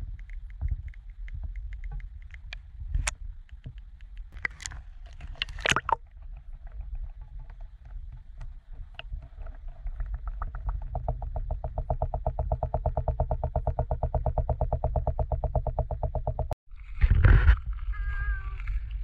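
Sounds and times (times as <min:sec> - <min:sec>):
underwater clicks and knocks: 0:00.0 - 0:16.6
muffled underwater rumble: 0:00.0 - 0:19.0.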